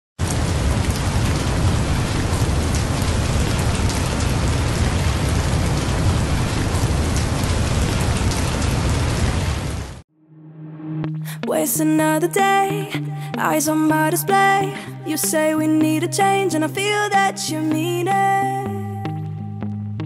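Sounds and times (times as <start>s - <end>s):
heavy rain: 0.2s - 10.0s.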